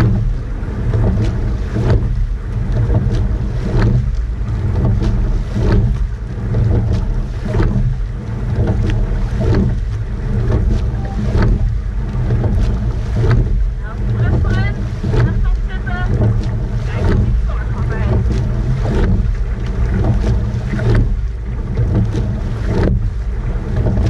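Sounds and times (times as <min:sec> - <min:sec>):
oars clacking in oarlocks: 0:00.0 - 0:24.0
water rushing past hull: 0:00.0 - 0:24.0
wind rumble on microphone: 0:00.0 - 0:24.0.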